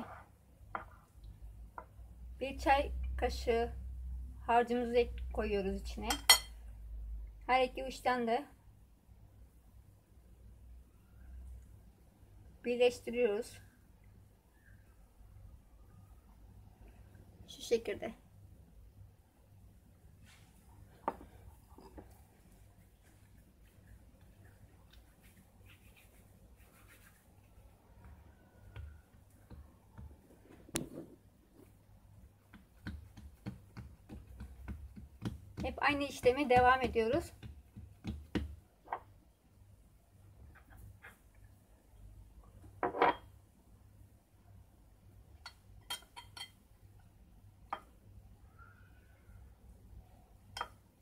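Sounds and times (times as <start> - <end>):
metal spoon against plate: 6.1 - 6.6, 45.4 - 46.6
hands pressing soft dough: 22.8 - 38.7.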